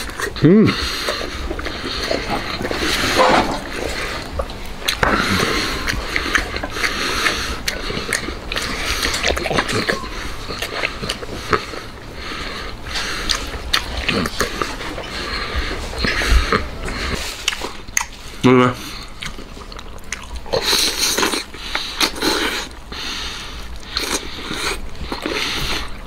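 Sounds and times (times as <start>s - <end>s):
lip smacks: 0.0s - 12.0s, 12.6s - 18.2s
man chewing meat: 0.0s - 26.0s
breaths: 5.0s - 9.2s, 10.0s - 13.5s, 15.1s - 17.5s, 22.9s - 26.0s.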